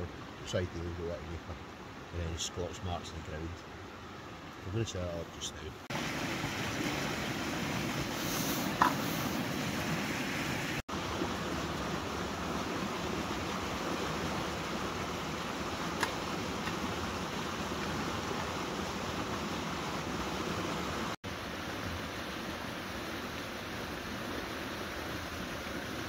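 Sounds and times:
river rushing: 1.6 - 26.0.

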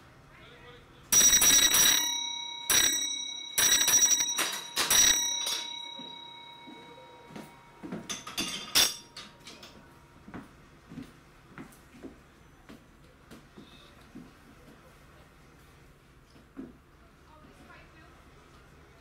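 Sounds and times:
block bell strokes ringing: 1.2 - 9.7.

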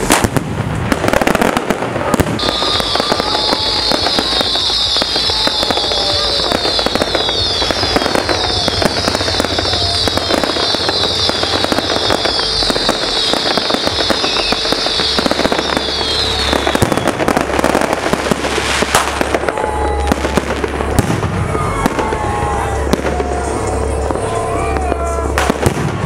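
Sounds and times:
fireworks bangs and crackles: 0.0 - 26.0
high falling whistles: 2.4 - 17.9.

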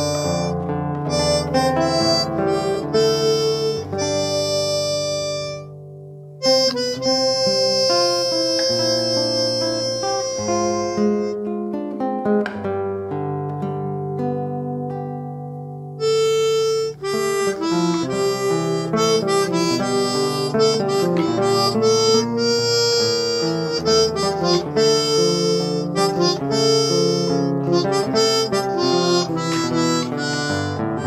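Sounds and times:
harmonica melody: 0.0 - 5.8, 6.4 - 11.8, 16.0 - 31.0
acoustic guitar: 0.0 - 31.0.

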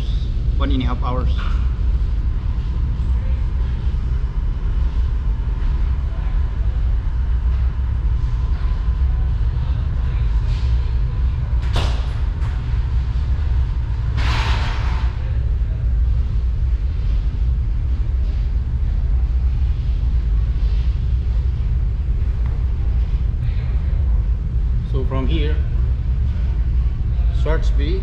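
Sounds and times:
ferry machinery rumble: 0.0 - 28.0.

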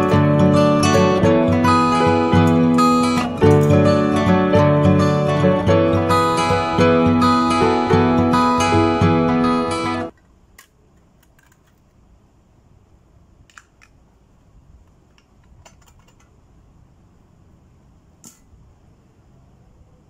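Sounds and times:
acoustic guitar music: 0.0 - 10.1.

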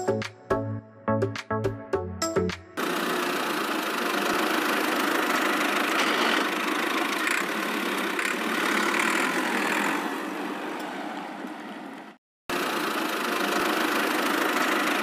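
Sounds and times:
tractor-like engine idling: 2.8 - 10.0, 12.5 - 15.0.

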